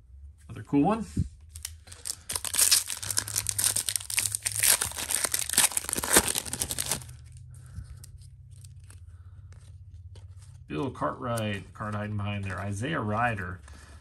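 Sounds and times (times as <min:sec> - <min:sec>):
cards rustling: 0:01.4 - 0:14.0
foil wrapper crinkling and tearing: 0:01.5 - 0:07.4.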